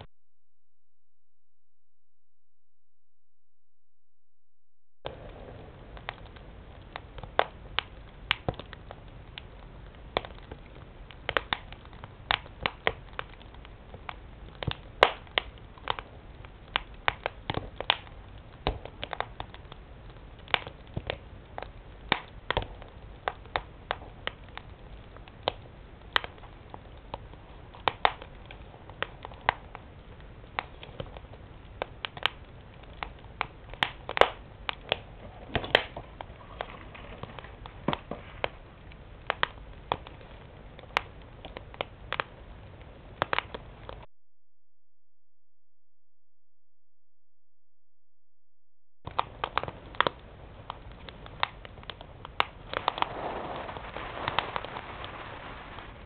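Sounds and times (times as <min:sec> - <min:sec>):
wood fire crackling and popping: 0:05.0 - 0:44.1, 0:49.0 - 0:56.0.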